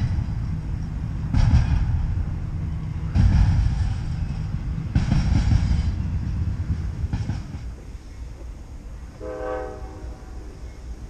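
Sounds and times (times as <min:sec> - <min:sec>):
freight train rumbling past: 0:00.0 - 0:11.0.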